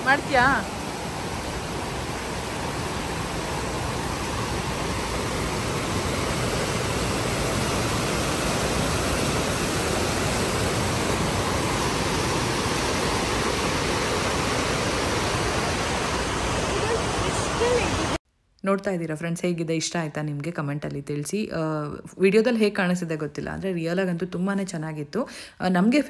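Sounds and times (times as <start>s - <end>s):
fountain water splashing: 0.0s - 18.2s.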